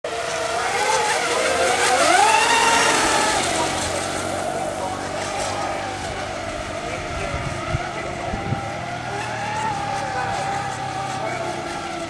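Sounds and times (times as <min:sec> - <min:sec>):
model boat motors whining: 0:00.0 - 0:12.0.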